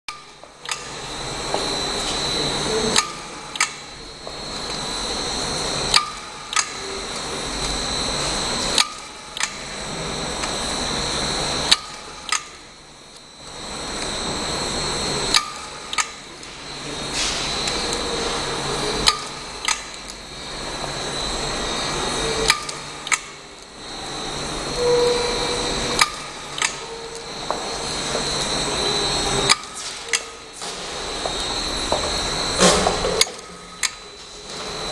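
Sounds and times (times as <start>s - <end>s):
machine motor whine: 0.1s - 34.9s
sharp machine clicks: 2.9s - 3.9s, 5.9s - 6.8s, 8.7s - 9.7s, 11.6s - 12.7s, 15.3s - 16.3s, 19.0s - 20.2s, 22.4s - 23.7s, 26.0s - 27.3s, 33.2s - 34.2s.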